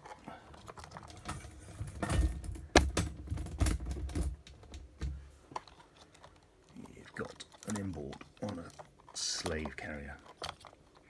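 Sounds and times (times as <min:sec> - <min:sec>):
circuit board and cables clicking: 0:05.5 - 0:11.0.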